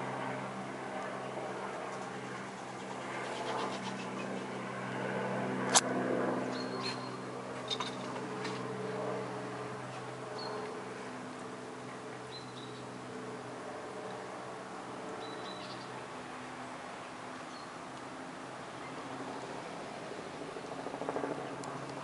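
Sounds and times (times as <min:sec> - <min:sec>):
helicopter rotor and engine drone: 0:00.0 - 0:22.0
sharp click: 0:05.7 - 0:05.9.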